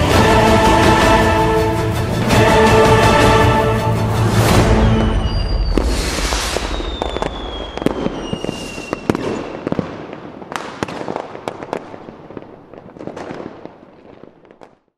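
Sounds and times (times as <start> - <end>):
falling firework whistles: 4.6 - 9.9
fireworks crackling and popping: 4.8 - 14.9.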